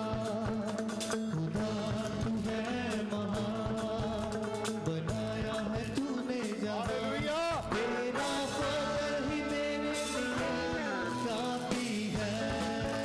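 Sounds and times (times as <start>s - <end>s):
men singing worship song: 0.0s - 13.0s
sustained instrumental notes: 6.9s - 12.3s.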